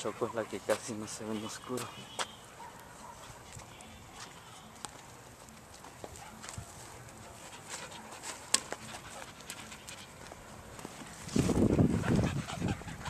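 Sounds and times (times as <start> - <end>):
dog footsteps on dirt trail: 0.0 - 13.0
rustling: 3.0 - 12.2
dog panting close to microphone: 6.2 - 10.6, 11.4 - 13.0.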